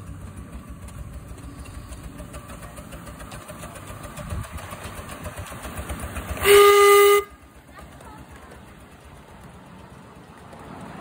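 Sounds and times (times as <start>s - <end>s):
steam locomotive exhaust beating: 0.0s - 11.0s
steam whistle: 6.4s - 7.3s.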